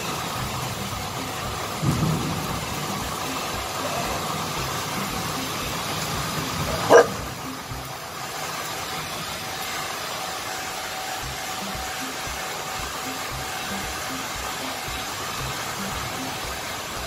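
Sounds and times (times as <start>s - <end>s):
dog barking: 6.7s - 7.4s.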